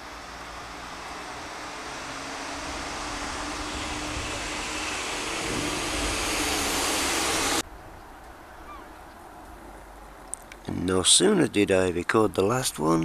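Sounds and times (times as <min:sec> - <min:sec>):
faint rising note: 0:00.0 - 0:07.6
loud rushing roar: 0:00.0 - 0:07.7.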